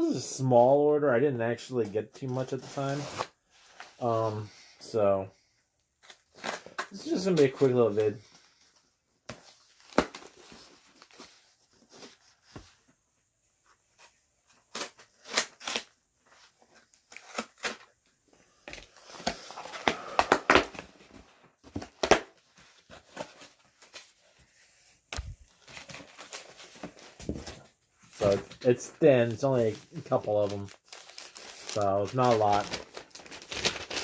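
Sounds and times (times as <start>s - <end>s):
cardboard tearing and rustling: 14.0s - 18.0s, 18.8s - 24.3s, 25.2s - 34.0s.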